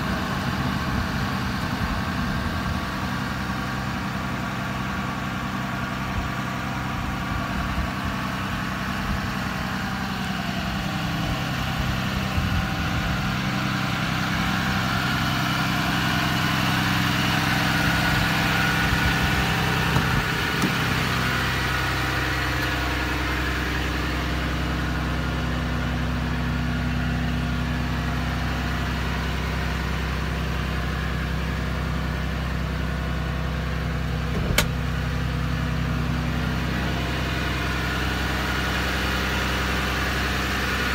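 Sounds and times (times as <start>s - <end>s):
diesel truck engine idling: 0.0s - 40.9s.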